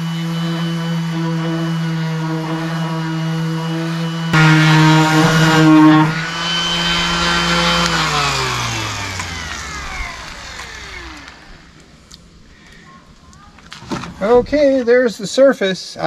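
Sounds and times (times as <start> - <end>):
orbital sander running: 0.0 - 12.0.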